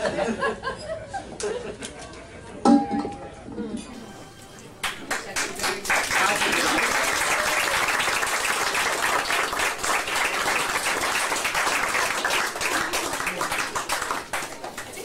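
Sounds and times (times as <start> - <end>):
crowd applauding: 4.0 - 15.0.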